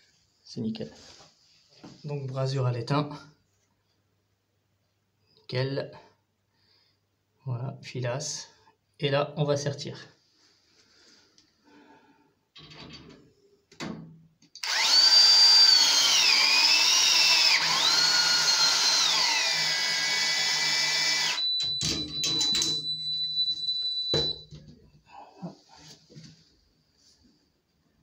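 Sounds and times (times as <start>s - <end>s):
press tool motor whine: 14.6s - 21.5s.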